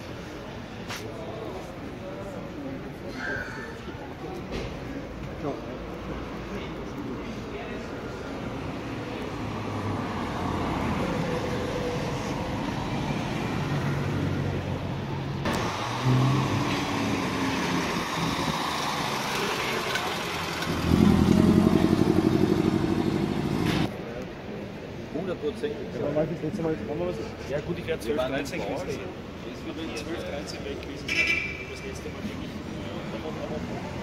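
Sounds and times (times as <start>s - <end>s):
cars driving past: 4.5s - 24.0s
traffic hiss: 15.4s - 24.1s.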